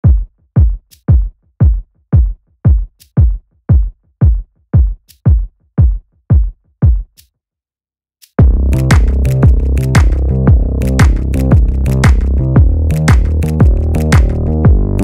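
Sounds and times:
electronic music with drum beat: 0.0 - 7.2, 8.3 - 15.0.

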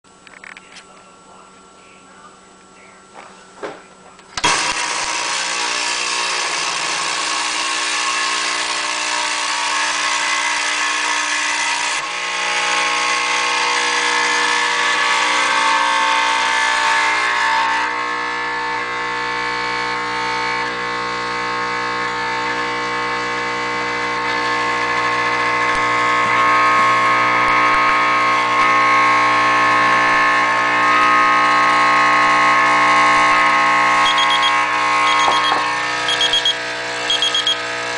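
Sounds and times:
espresso machine pump buzzing: 4.4 - 37.9.

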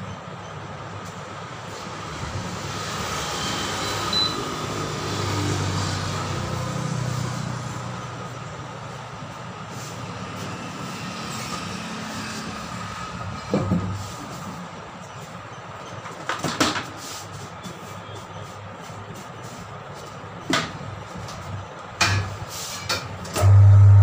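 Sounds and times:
tyre-changing machine humming: 23.3 - 24.0.

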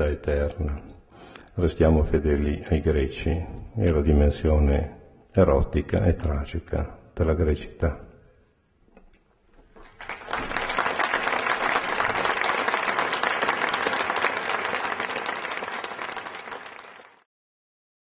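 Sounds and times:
audience applauding: 9.8 - 17.3.

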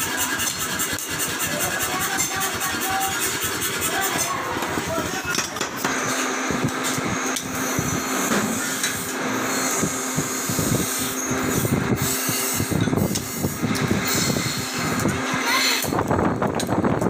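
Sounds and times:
tongs scraping in coals: 0.0 - 4.5
blower motor humming: 0.0 - 17.0.

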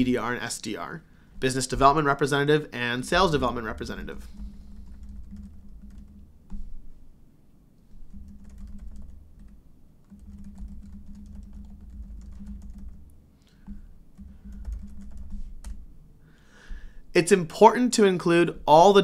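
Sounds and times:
low steady hum: 0.0 - 19.0
laptop keyboard typing: 3.2 - 6.8, 8.0 - 15.9.

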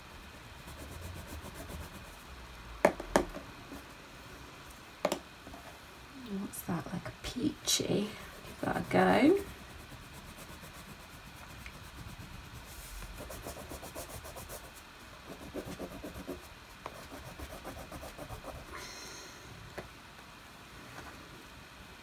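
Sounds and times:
crayon rubbing on paper: 0.6 - 2.2, 8.3 - 18.8.

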